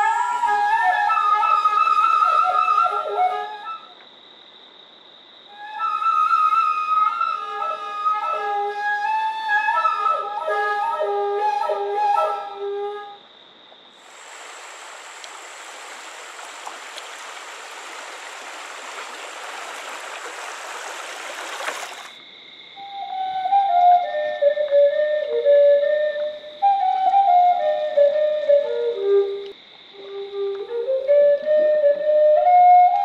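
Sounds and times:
flute melody: 0:00.0 - 0:04.0, 0:05.6 - 0:13.2, 0:22.8 - 0:33.0
river water rushing over riffle: 0:14.0 - 0:22.2.

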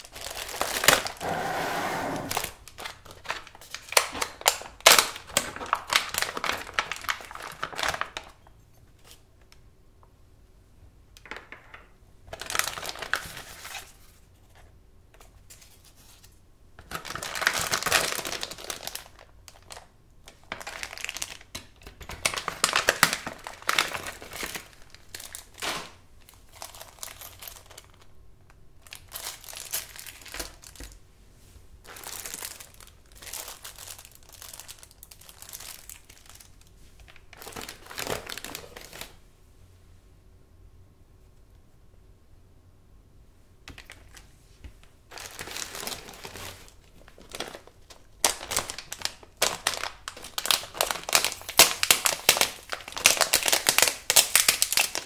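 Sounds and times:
plastic packaging crinkling: 0:00.0 - 0:01.3, 0:02.2 - 0:08.4, 0:12.3 - 0:14.0, 0:15.5 - 0:28.1, 0:28.8 - 0:31.0, 0:31.8 - 0:39.2, 0:45.1 - 0:55.0.

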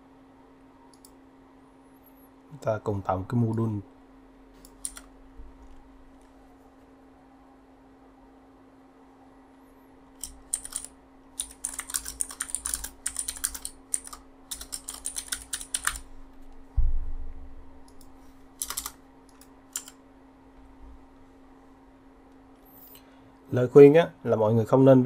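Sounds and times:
computer keyboard typing: 0:04.6 - 0:05.8, 0:10.2 - 0:16.1, 0:17.9 - 0:20.0.

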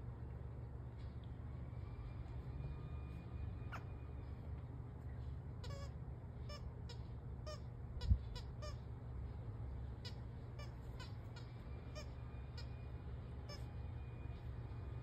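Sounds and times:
squeaky dog toy squeaking: 0:03.6 - 0:04.3, 0:05.6 - 0:09.0, 0:09.9 - 0:14.4.

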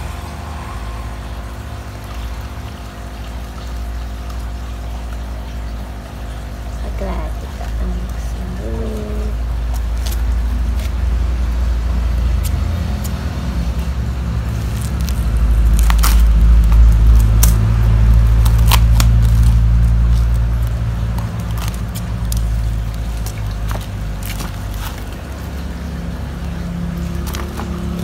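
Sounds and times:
loud low rumble: 0:06.8 - 0:28.0
plastic wrap crinkling: 0:07.6 - 0:28.0
scissors snipping: 0:12.3 - 0:25.1.

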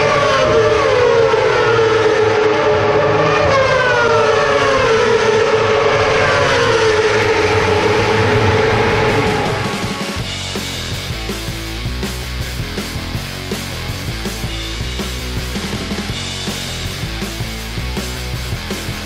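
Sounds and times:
racing motorcycles passing: 0:00.0 - 0:11.8.

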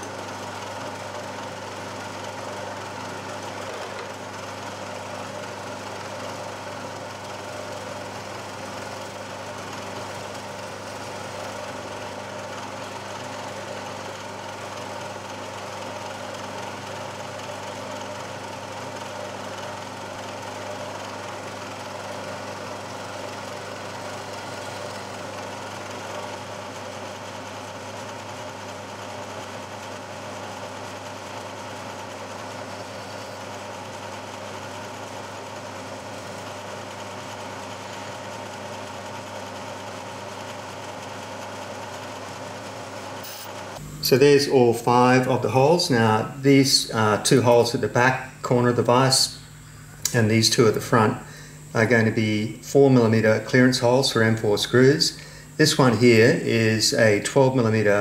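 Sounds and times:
milling machine motor humming: 0:00.0 - 0:58.0
drill drilling into steel: 0:43.2 - 0:44.1.

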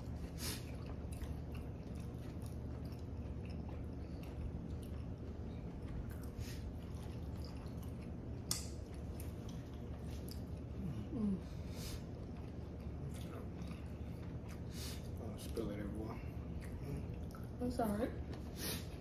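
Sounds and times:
close chewing and eating: 0:00.0 - 0:19.0
steady low hum: 0:00.0 - 0:19.0
wet smacks: 0:08.4 - 0:08.8.

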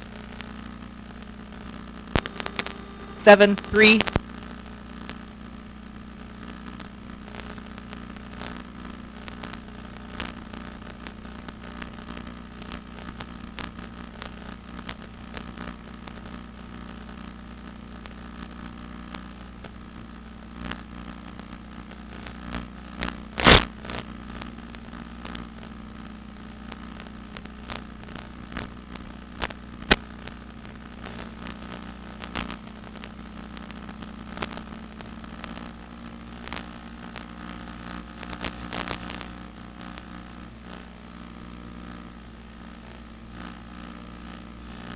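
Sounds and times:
crackles and clicks: 0:02.2 - 0:04.2
electrical hum and static: 0:02.2 - 0:04.2.

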